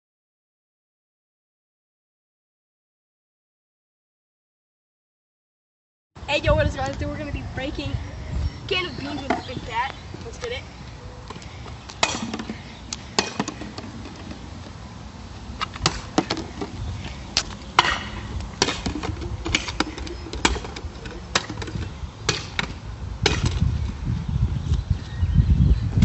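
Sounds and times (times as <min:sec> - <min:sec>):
bat whacking a can on asphalt: 0:12.0 - 0:12.6, 0:13.2 - 0:14.4, 0:15.7 - 0:16.8, 0:17.4 - 0:23.7.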